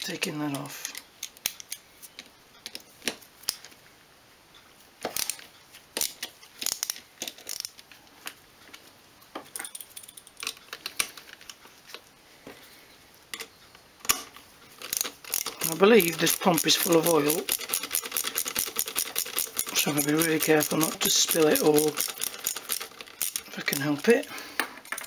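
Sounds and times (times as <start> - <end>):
plastic and metal parts clicking: 5.0 - 8.4, 9.6 - 12.0, 13.4 - 25.0.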